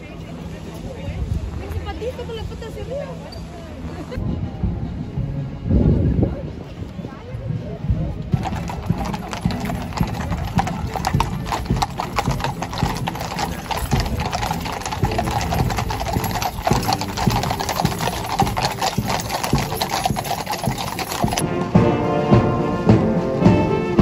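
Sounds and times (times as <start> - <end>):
horse hooves clip-clopping on road: 8.0 - 24.0.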